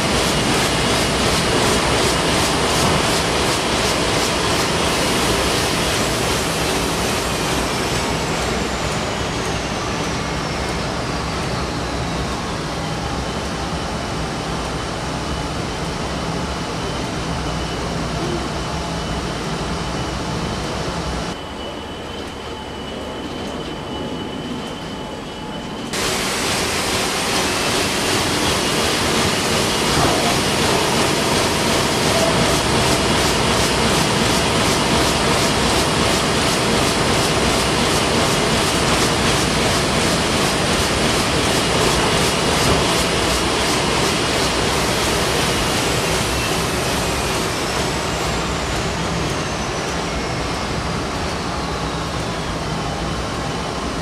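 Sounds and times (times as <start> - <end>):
printing press running: 26.0 - 48.3.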